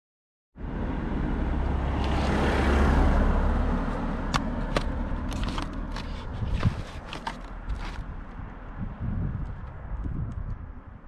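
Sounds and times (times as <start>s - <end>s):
wind buffeting microphone: 4.4s - 11.0s.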